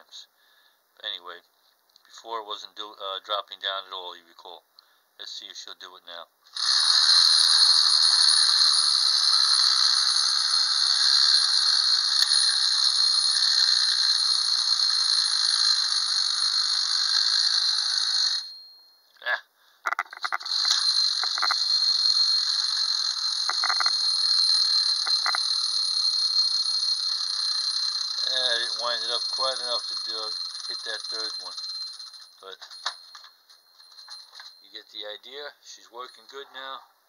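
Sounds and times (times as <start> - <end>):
toy mechanism clicks: 6.5 - 14.0, 19.9 - 26.3
clockwork motor running: 6.5 - 18.5, 20.2 - 32.2
toy bell ringing: 17.4 - 19.0, 19.9 - 34.8.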